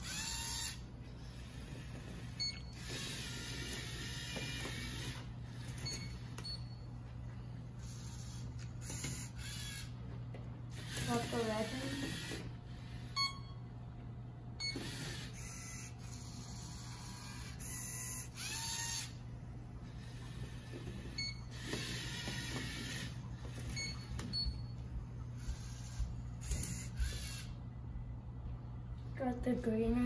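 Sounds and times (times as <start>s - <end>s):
servo motors whirring: 0.0s - 6.4s, 7.8s - 10.0s, 10.7s - 13.2s, 14.6s - 19.2s, 19.9s - 24.1s, 25.4s - 27.6s.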